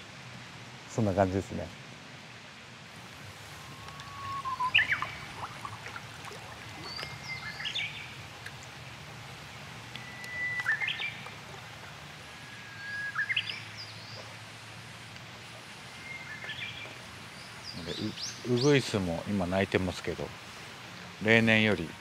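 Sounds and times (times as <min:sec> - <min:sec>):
bush warbler singing: 0:03.4 - 0:08.3, 0:09.8 - 0:11.6, 0:12.2 - 0:14.4, 0:15.7 - 0:22.0.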